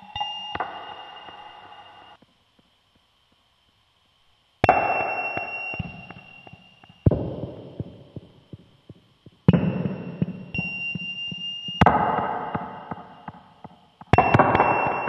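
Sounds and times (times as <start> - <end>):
thin high steady tone: 0.0 - 2.2, 4.6 - 8.6, 9.5 - 15.0
electronic noise hits: 4.6 - 15.0.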